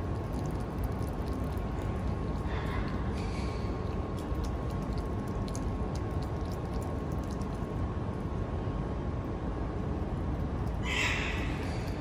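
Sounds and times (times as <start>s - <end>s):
animal chewing crisply: 0.0s - 8.3s
faint steady whine: 0.0s - 12.0s
low background rumble: 0.0s - 12.0s.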